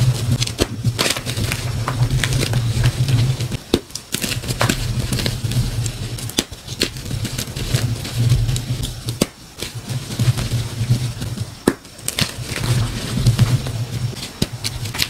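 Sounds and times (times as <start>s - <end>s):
chalk crunching and crackling: 0.0s - 15.0s.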